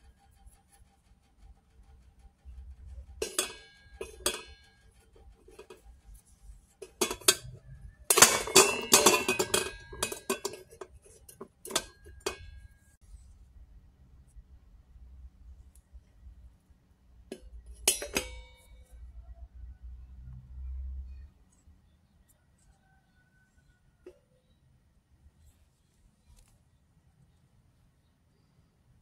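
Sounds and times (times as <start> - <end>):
fingernails clicking on steel bowl: 2.2 - 5.9, 6.7 - 12.7.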